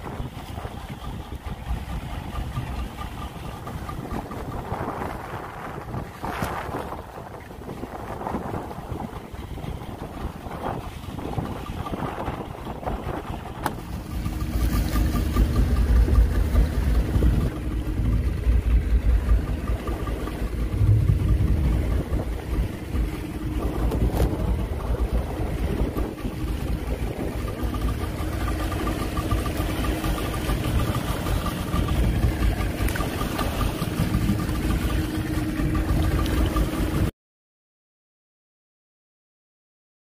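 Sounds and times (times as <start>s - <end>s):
boat engine running: 0.0s - 37.1s
water rushing along hull: 0.0s - 37.1s.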